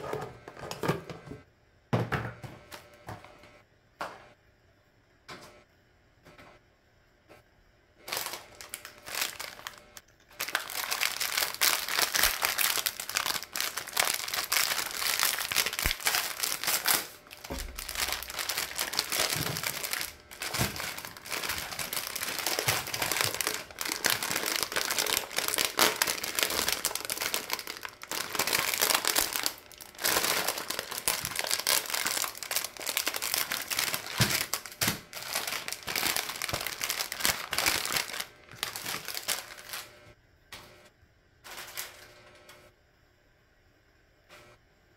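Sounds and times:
plastic bags crinkling: 8.0 - 40.0, 41.5 - 42.2.

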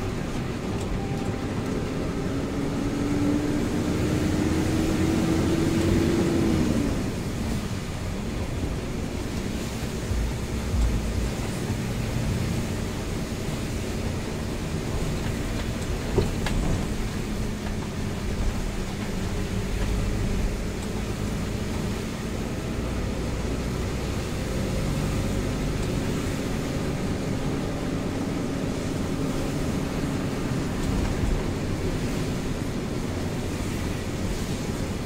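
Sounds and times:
diesel engine hum: 0.0 - 35.0
rain: 0.0 - 35.0
tyres hissing on wet road: 0.0 - 35.0.

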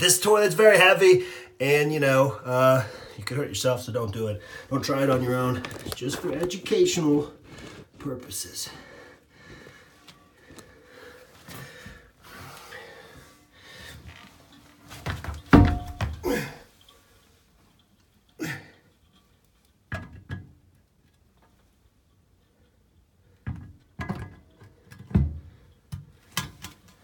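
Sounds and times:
heavy toilet thunking onto floor: 15.1 - 16.6.

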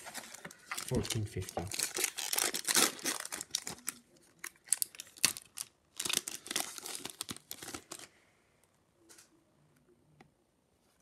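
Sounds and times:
foil wrapper crinkling: 0.0 - 8.1.

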